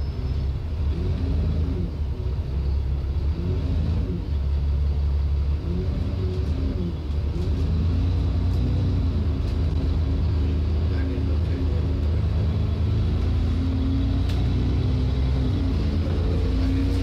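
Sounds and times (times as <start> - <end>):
bus engine and road rumble: 0.0 - 17.0.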